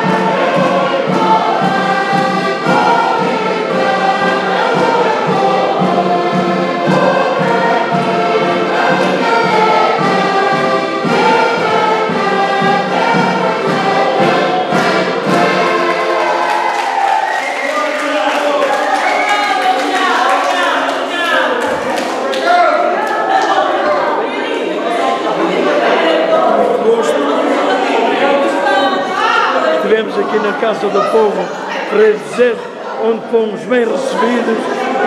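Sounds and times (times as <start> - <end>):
accordions playing lively tune: 0.0 - 17.0
group of voices singing: 0.0 - 35.0.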